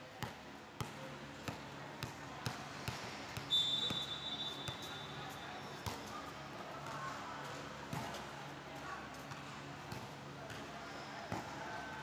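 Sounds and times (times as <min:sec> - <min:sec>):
referee's whistle blowing: 0:03.5 - 0:05.2.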